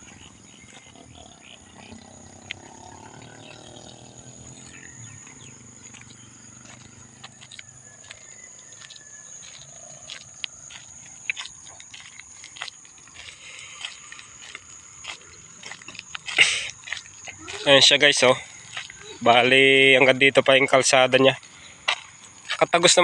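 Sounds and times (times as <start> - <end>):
steady high-pitched whine: 0.0 - 23.0
footsteps on concrete: 4.7 - 19.2, 21.3 - 22.7.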